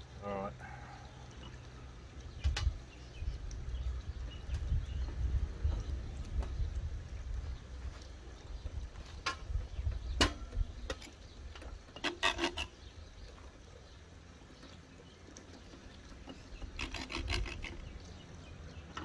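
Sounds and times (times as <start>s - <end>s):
knife clicking and scraping meat: 16.6s - 17.9s.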